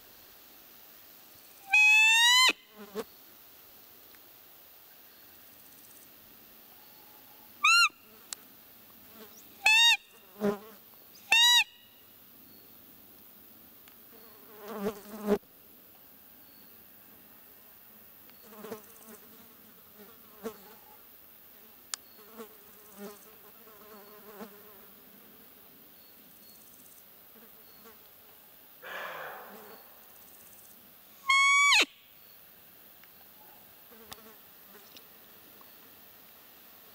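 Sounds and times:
faint insect buzzing: 0:01.2 - 0:36.8
deer call high squeaks: 0:01.7 - 0:02.6, 0:07.6 - 0:08.0, 0:09.6 - 0:10.0, 0:11.3 - 0:11.8, 0:31.2 - 0:32.0.

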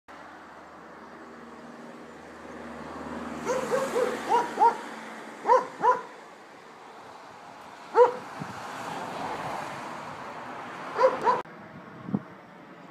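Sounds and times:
dog barking: 0:03.4 - 0:06.1, 0:07.9 - 0:08.3, 0:11.0 - 0:11.4.

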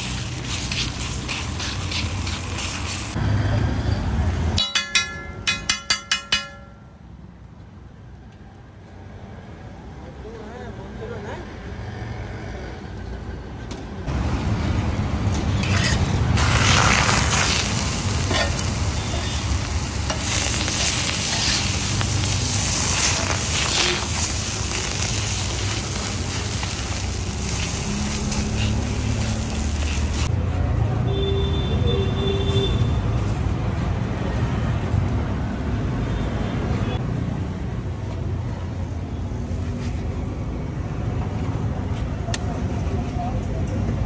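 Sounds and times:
food sizzling on a griddle: 0:00.0 - 0:03.2, 0:15.6 - 0:30.3
scraping and stirring: 0:00.0 - 0:03.2, 0:15.4 - 0:18.6
street traffic rumble: 0:00.0 - 0:44.0.

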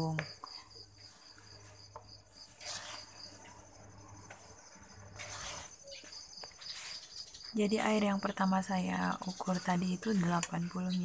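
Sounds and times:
cricket chirping: 0:00.3 - 0:10.1
dough mixed by hand in bowl: 0:01.0 - 0:03.7, 0:04.3 - 0:05.8.

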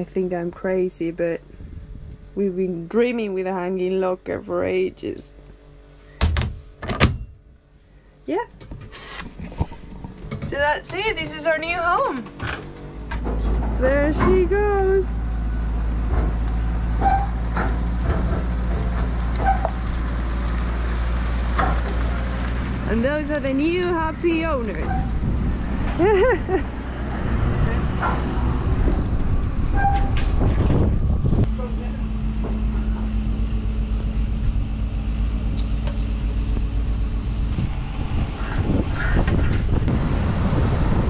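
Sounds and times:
boat transporter engine running: 0:09.2 - 0:41.0.

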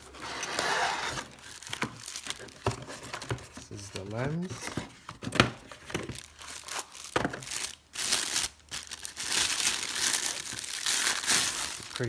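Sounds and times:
plastic bag crinkling: 0:01.4 - 0:02.7, 0:06.0 - 0:12.0.

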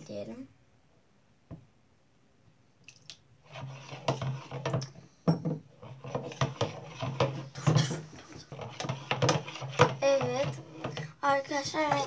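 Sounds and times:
metal spoon scraping bowl: 0:03.4 - 0:05.0, 0:05.8 - 0:12.0.

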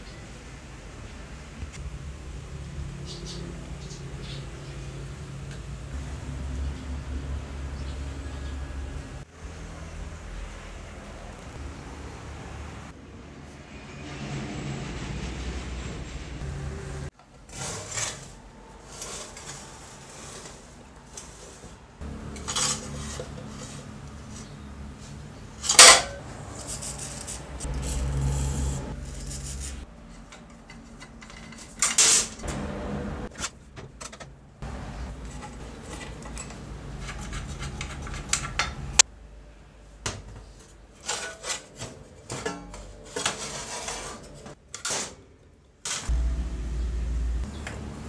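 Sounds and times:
metal saw parts clanking: 0:22.2 - 0:23.8, 0:25.6 - 0:28.1, 0:30.1 - 0:32.5, 0:41.0 - 0:45.2.

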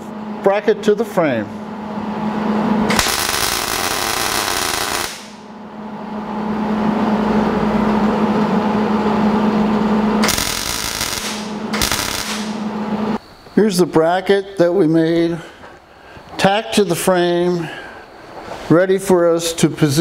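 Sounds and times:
steady low hum: 0:00.0 - 0:20.0
welding arc crackle and sizzle: 0:02.9 - 0:05.4, 0:10.2 - 0:12.6.

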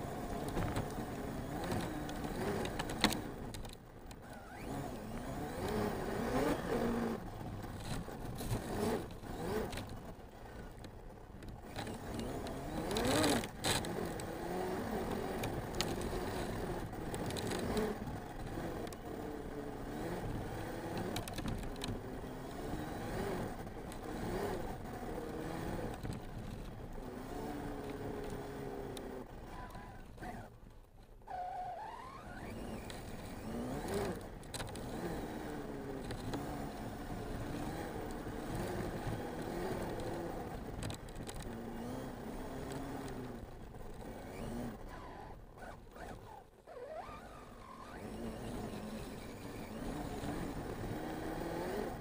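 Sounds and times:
chassis rattling on rough ground: 0:00.0 - 0:31.2, 0:32.4 - 0:46.6.

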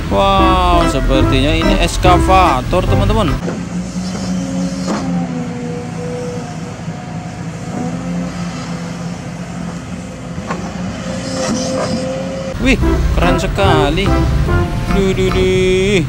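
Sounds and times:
excavator engine running: 0:00.0 - 0:04.6, 0:12.5 - 0:16.0.

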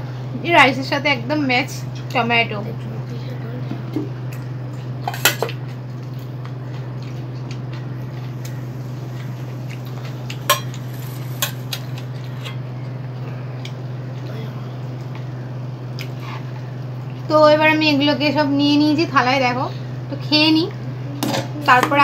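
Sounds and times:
steady low hum: 0:00.0 - 0:22.0
dishes clinking: 0:10.4 - 0:12.6.

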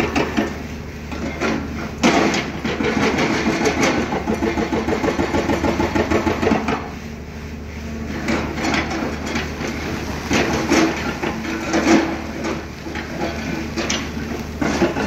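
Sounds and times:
excavator engine under load: 0:00.0 - 0:06.9, 0:07.9 - 0:15.0
bucket raking rock and soil: 0:08.1 - 0:15.0.

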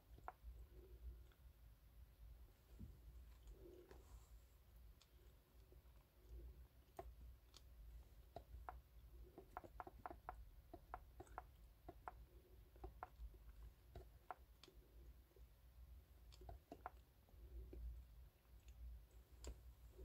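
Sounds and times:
fingertips tapping touchscreen: 0:00.0 - 0:01.5, 0:05.0 - 0:15.3, 0:16.2 - 0:18.0.

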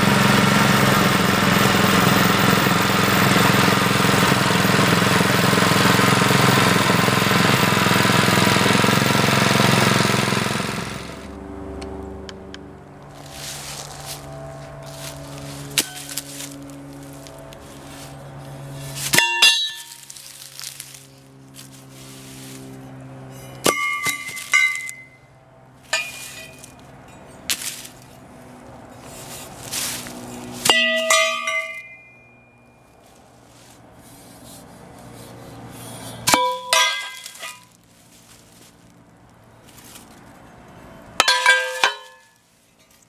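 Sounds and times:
metal parts clanking: 0:23.4 - 0:25.2, 0:25.9 - 0:28.1, 0:36.3 - 0:37.7, 0:41.2 - 0:43.0.

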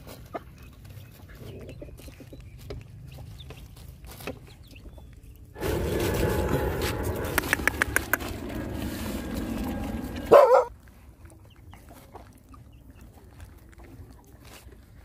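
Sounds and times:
faint chicken clucks: 0:00.0 - 0:05.5, 0:11.1 - 0:15.0
puppies eating: 0:07.4 - 0:15.0.

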